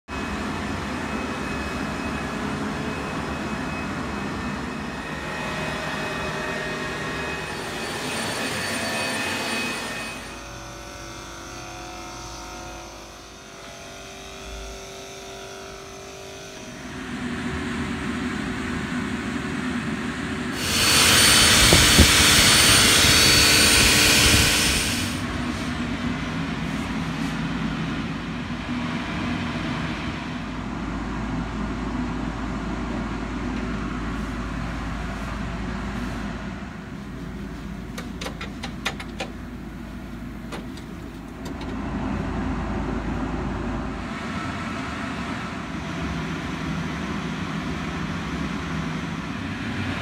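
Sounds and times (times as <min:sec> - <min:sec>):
sprayer motor whir: 0:20.6 - 0:25.7.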